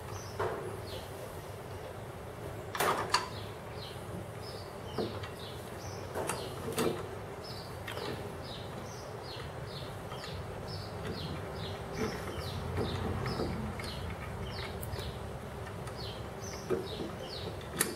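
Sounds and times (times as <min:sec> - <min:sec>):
metal clicks and knocks: 0:11.0 - 0:17.9.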